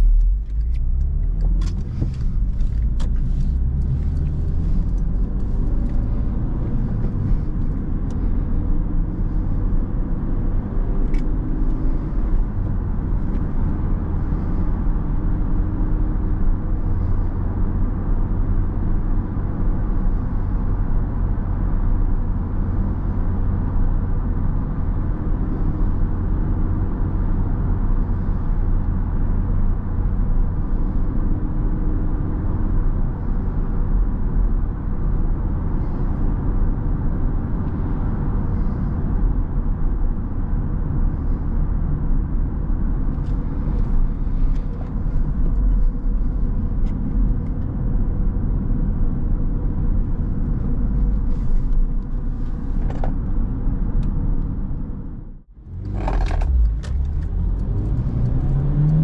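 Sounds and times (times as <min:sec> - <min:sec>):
tyre and road rumble: 0:00.0 - 0:21.1, 0:33.1 - 0:59.0
car engine hum: 0:00.0 - 0:59.0.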